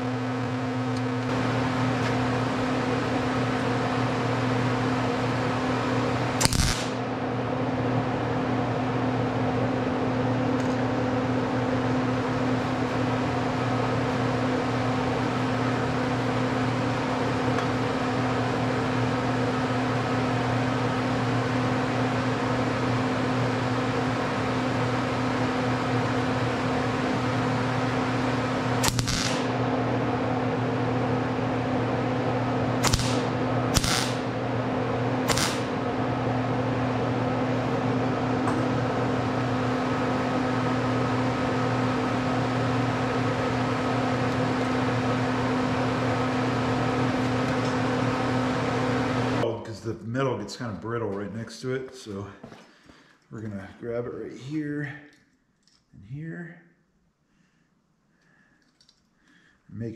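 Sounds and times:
welder electrical hum: 0:00.0 - 0:56.8
welding arc crackling: 0:06.3 - 0:07.1, 0:28.8 - 0:29.7, 0:32.8 - 0:34.4, 0:35.2 - 0:35.8.

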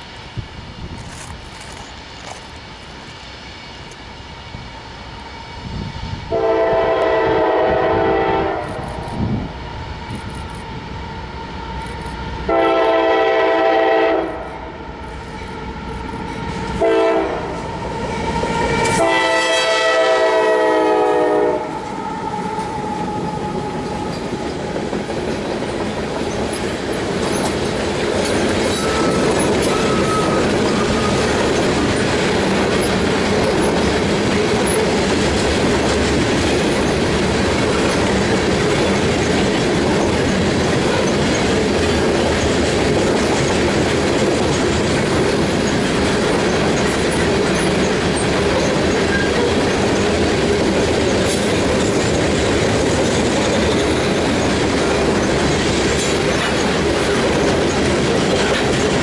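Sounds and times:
train rumble and wheel clatter: 0:00.0 - 0:59.0
locomotive horn: 0:06.3 - 0:08.8, 0:12.5 - 0:14.6, 0:16.7 - 0:24.2.

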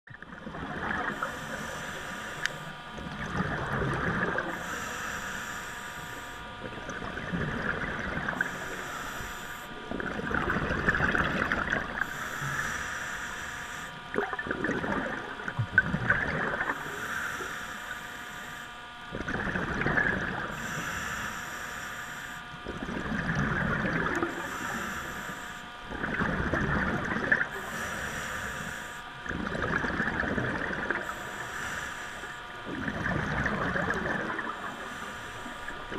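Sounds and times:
exhaled air bubbling: 0:00.1 - 0:35.9
regulator inhale hiss: 0:01.0 - 0:02.8, 0:04.3 - 0:06.5, 0:08.2 - 0:09.8, 0:12.0 - 0:14.0, 0:16.6 - 0:18.8, 0:20.4 - 0:22.5, 0:24.2 - 0:25.7, 0:27.5 - 0:29.1, 0:31.0 - 0:32.6, 0:34.2 - 0:35.9.

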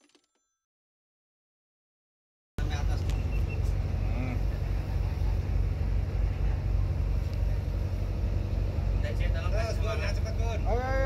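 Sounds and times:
boat engine rumbling: 0:02.6 - 0:11.0
faint voices: 0:02.6 - 0:11.0.

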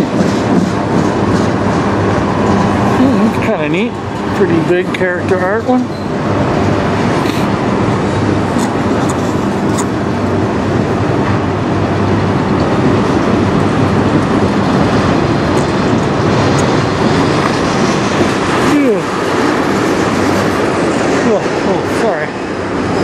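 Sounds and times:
train wheels rumbling on rails: 0:00.0 - 0:23.0.

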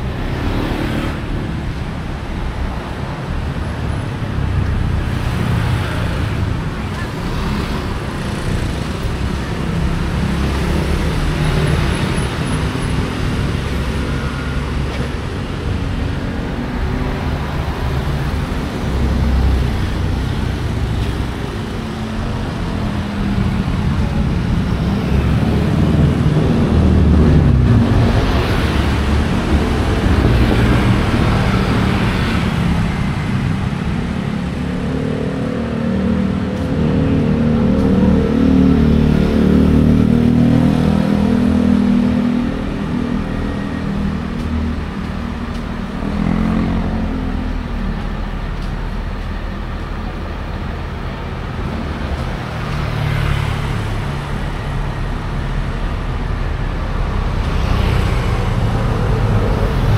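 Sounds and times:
traffic passing: 0:00.0 - 0:59.9
loud vehicle passing: 0:04.2 - 0:59.9.

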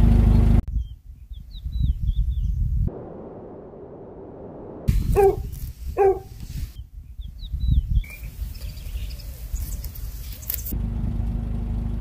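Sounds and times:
wind on microphone: 0:00.7 - 0:03.2, 0:04.8 - 0:10.3
high bird chirps: 0:05.1 - 0:10.7.

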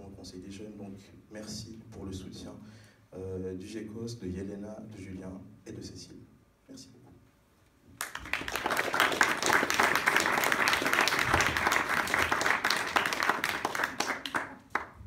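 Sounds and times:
audience applauding: 0:08.0 - 0:15.0.

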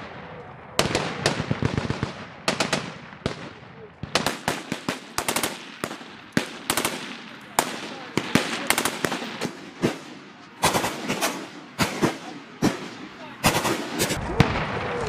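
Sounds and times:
rifle gunshots: 0:00.8 - 0:15.0.

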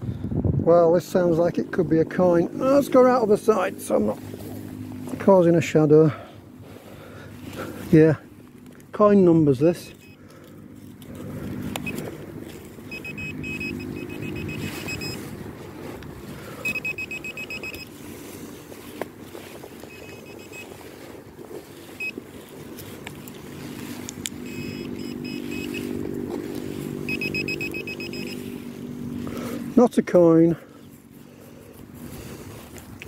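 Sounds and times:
low hum: 0:00.0 - 0:29.8
knocks and scrapes in soil: 0:01.7 - 0:06.0, 0:06.6 - 0:33.0
rapid beeps of metal detector: 0:09.8 - 0:10.4, 0:11.2 - 0:15.4, 0:16.5 - 0:28.6.

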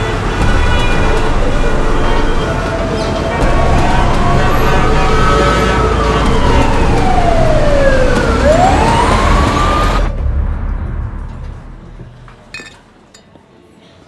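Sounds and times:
low traffic rumble: 0:00.0 - 0:13.2
emergency siren wailing: 0:00.2 - 0:10.2.

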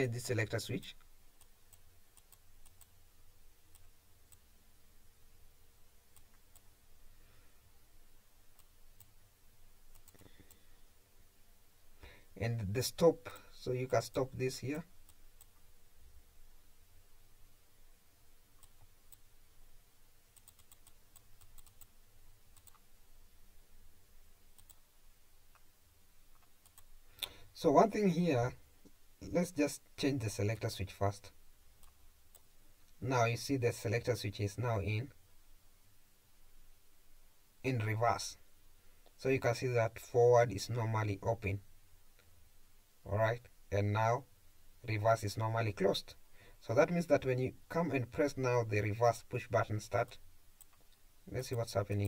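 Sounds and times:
faint low hum: 0:00.0 - 0:52.0
faint computer mouse clicks: 0:01.0 - 0:03.0, 0:09.9 - 0:10.6, 0:18.6 - 0:19.2, 0:20.4 - 0:21.9, 0:22.5 - 0:22.8, 0:24.6 - 0:24.8, 0:26.3 - 0:27.4, 0:50.0 - 0:51.0.

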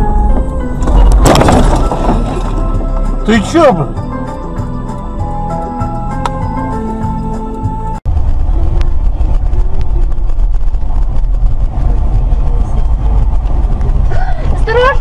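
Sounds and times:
background music: 0:00.0 - 0:08.0
car engine and road rumble: 0:00.0 - 0:15.0.

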